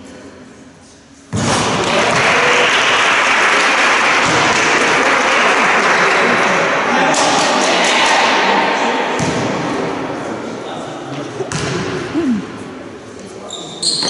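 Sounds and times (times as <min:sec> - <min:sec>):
crowd applauding: 0:01.8 - 0:07.1.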